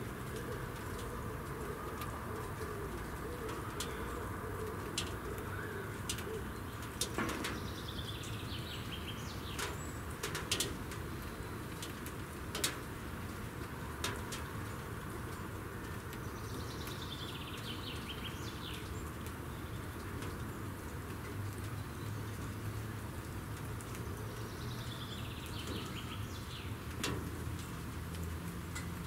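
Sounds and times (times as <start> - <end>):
pigeons cooing: 0.1 - 7.1.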